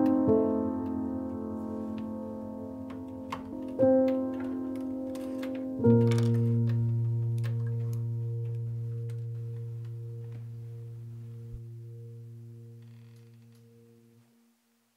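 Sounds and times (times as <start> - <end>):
low sustained musical note: 4.2 - 14.2.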